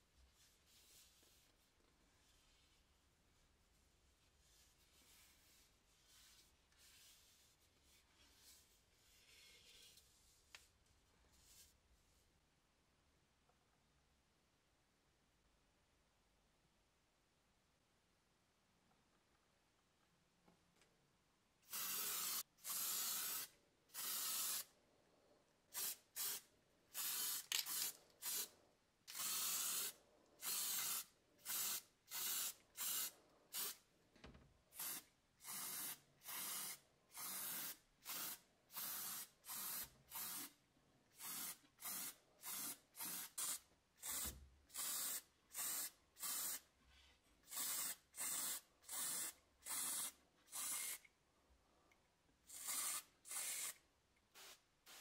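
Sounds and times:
spray paint hissing: 21.7s - 24.7s, 25.7s - 28.5s, 29.1s - 33.8s, 34.8s - 40.5s, 41.2s - 46.6s, 47.4s - 51.0s, 52.5s - 53.8s.

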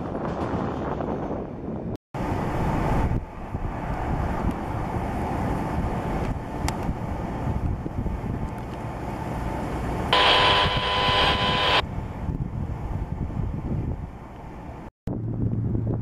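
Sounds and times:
wind buffeting microphone: 0.0s - 8.8s, 11.8s - 16.0s
loud steady multi-pitch tone: 10.1s - 11.8s.

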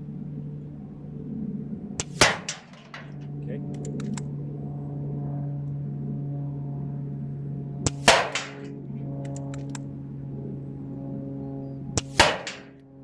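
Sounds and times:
air rifle shot: 2.0s - 3.2s, 7.9s - 8.7s, 12.0s - 12.8s
faint clicks: 3.7s - 4.3s, 9.2s - 9.8s.

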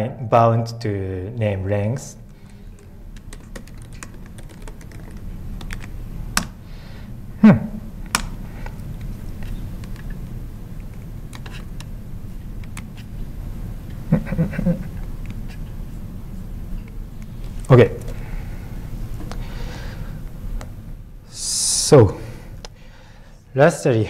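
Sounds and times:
laptop keyboard typing: 2.3s - 6.6s.

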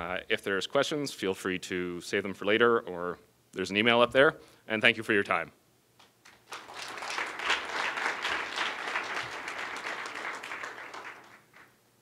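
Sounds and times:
audience applauding: 6.3s - 11.8s.

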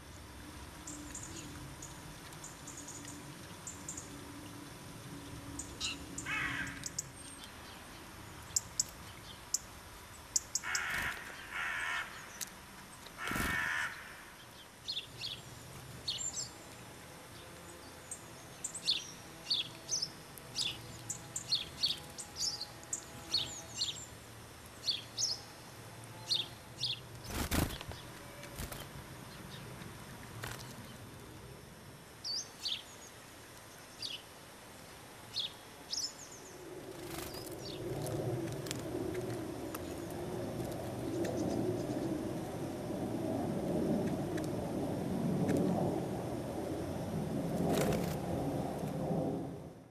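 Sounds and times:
small birds chirping: 0.8s - 31.1s, 32.2s - 34.3s
crow cawing: 6.2s - 6.9s, 10.6s - 12.3s, 13.2s - 14.4s.

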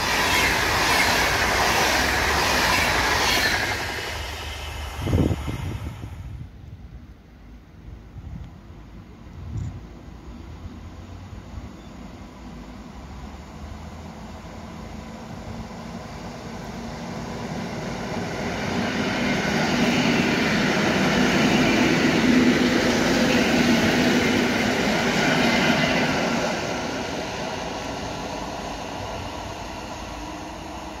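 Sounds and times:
train wheels running: 0.0s - 6.3s, 14.8s - 31.0s.

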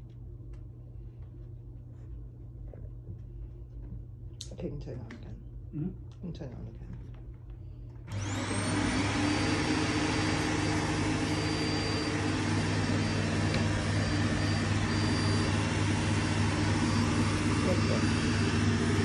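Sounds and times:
vacuum cleaner motor whining: 8.1s - 19.0s.

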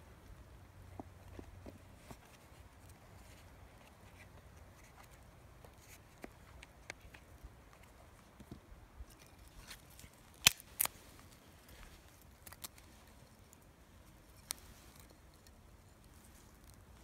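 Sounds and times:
fire crackling and popping: 9.7s - 11.3s.

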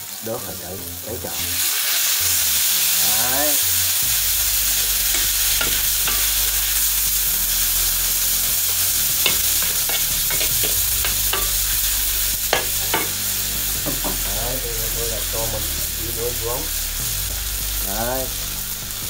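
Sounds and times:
greens sizzling in a wok: 0.0s - 19.0s
metal spatula scraping wok: 1.3s - 14.4s.

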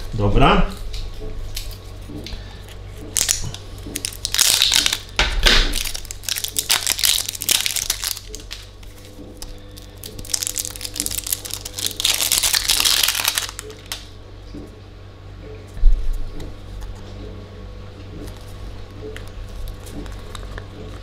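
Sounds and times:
plastic shrink-wrap crinkling: 2.6s - 14.1s.

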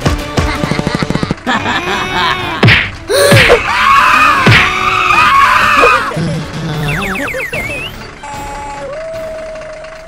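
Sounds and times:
background music: 0.0s - 10.0s
cartoon voices screaming and wailing: 1.8s - 6.2s.

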